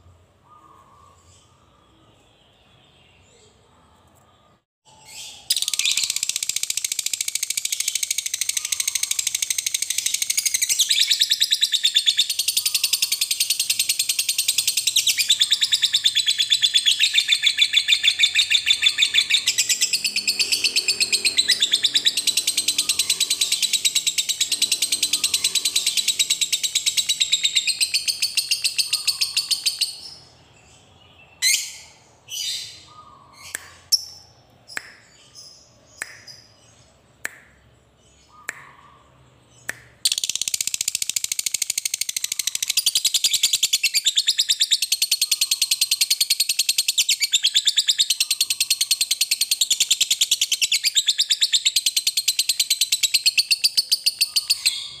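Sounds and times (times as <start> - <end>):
short bird chirps: 0.5 - 30.3
bird chattering trill: 5.5 - 30.2, 40.1 - 55.0.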